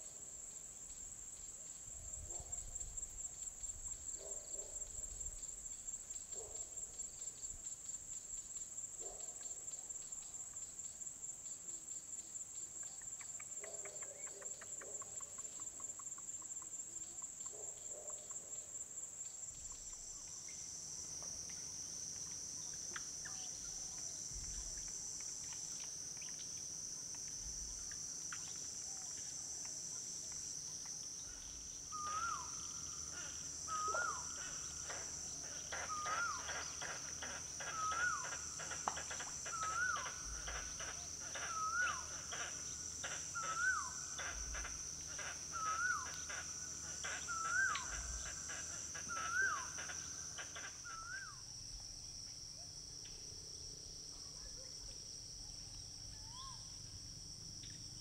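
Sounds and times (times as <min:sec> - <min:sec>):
insects shrilling: 0:22.5 - 0:51.4.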